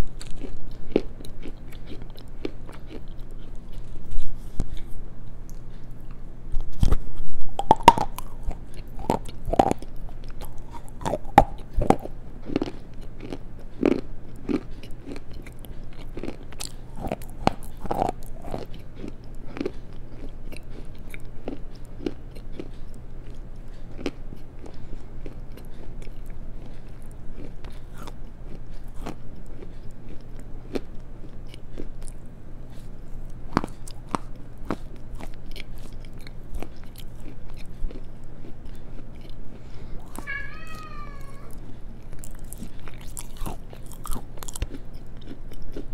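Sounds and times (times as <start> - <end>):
chewing stones crunching: 0.0 - 45.9.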